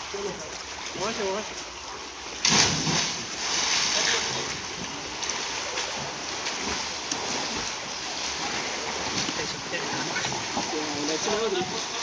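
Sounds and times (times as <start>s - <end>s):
water churning from swimming: 0.0s - 12.0s
person splashing into pool: 2.4s - 4.0s.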